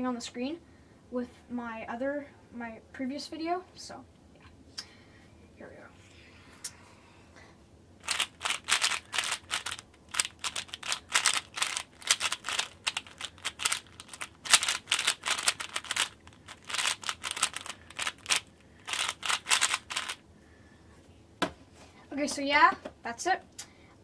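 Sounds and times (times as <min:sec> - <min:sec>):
puzzle cube clicking: 0:08.0 - 0:20.2.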